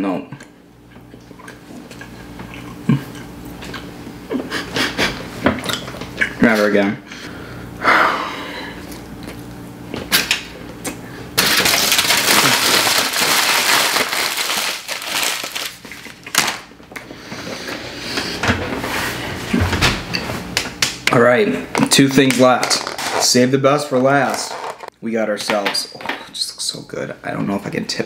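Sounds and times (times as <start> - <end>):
foil crumpling by hand: 11.4 - 16.7.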